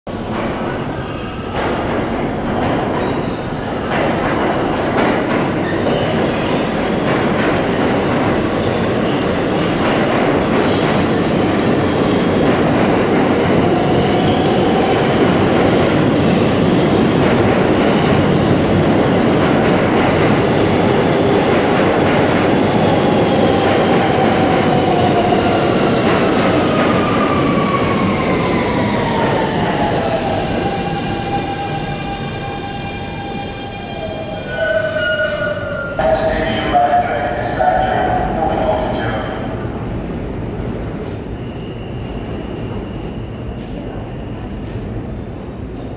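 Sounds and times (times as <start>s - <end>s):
train wheels rumbling on rails: 0.1s - 33.8s.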